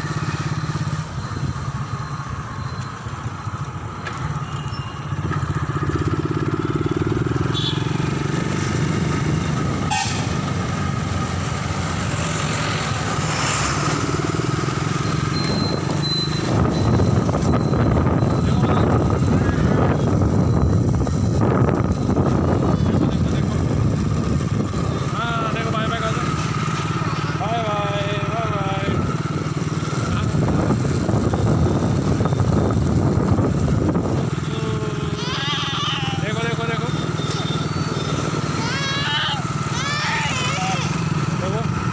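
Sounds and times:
motorcycle engine running: 0.0 - 41.9
road and wind noise: 0.0 - 41.9
wind buffeting microphone: 15.7 - 25.0, 29.3 - 34.4
brief high voice: 34.8 - 36.2.

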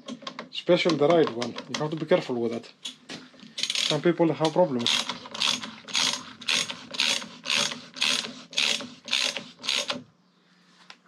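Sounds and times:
hand ratchet clicking: 3.6 - 10.0.

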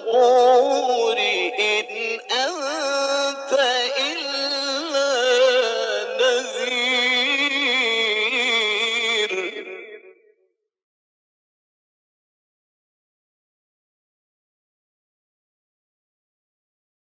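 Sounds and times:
man reciting melodically: 0.0 - 10.1.

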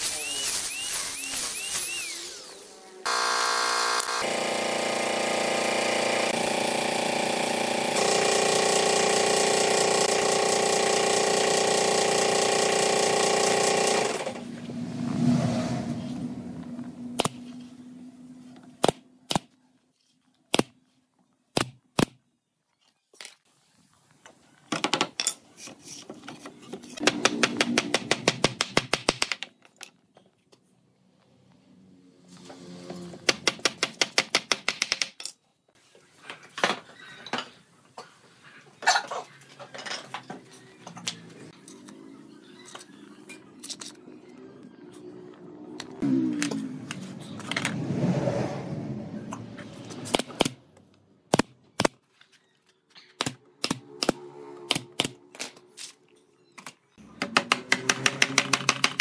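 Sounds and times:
angle grinder sanding wood: 0.0 - 4.4.

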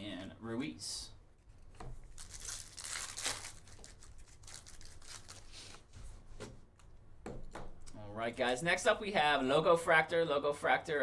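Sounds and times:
card pack wrapper tearing and crinkling: 2.0 - 5.8.

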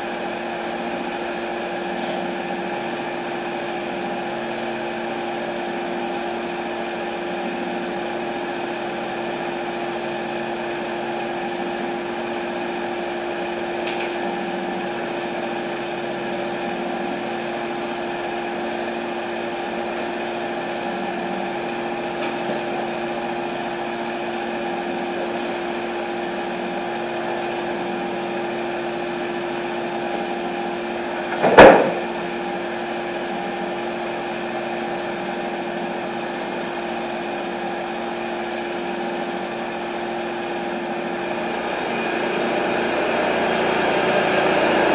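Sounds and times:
sawmill engine running: 0.0 - 44.9
wooden slab thump: 31.4 - 32.1.

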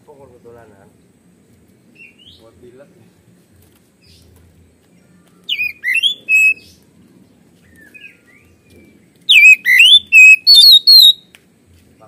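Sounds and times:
bird singing whistled notes: 1.9 - 2.5, 5.0 - 6.8, 7.6 - 11.3
soft bird chirps: 4.0 - 11.4.

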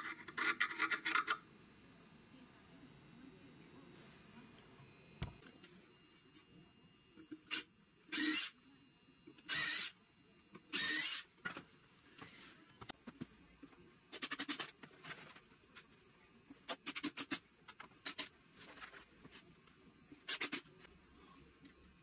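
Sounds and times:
cordless drill boring into wood: 8.1 - 8.5, 9.5 - 10.0, 10.7 - 11.3.

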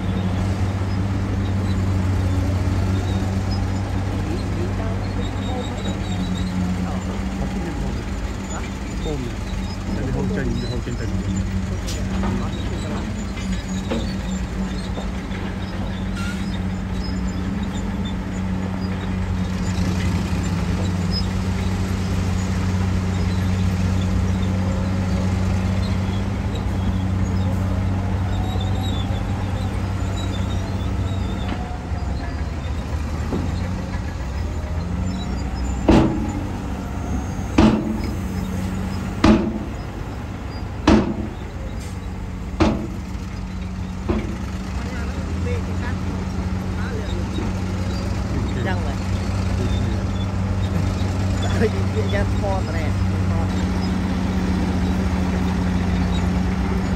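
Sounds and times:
heavy diesel engines running: 0.0 - 56.9
sharp knocks: 35.8 - 36.7, 37.5 - 38.5, 39.2 - 39.9, 40.8 - 41.5, 42.6 - 43.1.

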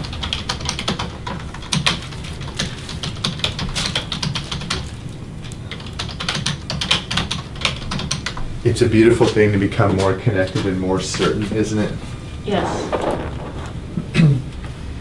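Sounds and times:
typing on a keyboard: 0.0 - 4.9, 5.7 - 8.4.

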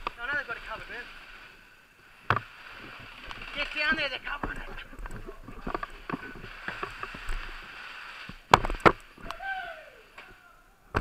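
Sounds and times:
camera rubbing rustle: 2.2 - 9.2.

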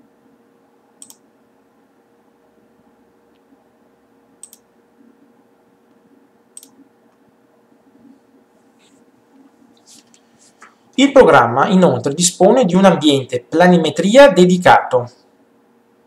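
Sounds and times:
faint steady hum: 0.0 - 16.0
computer mouse clicks: 1.0 - 1.2, 4.4 - 4.7, 6.6 - 6.8.

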